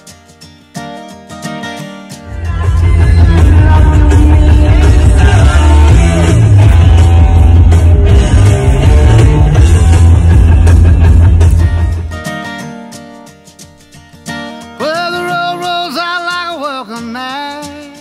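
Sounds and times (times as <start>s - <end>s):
loud rock music: 2.2s - 12.6s.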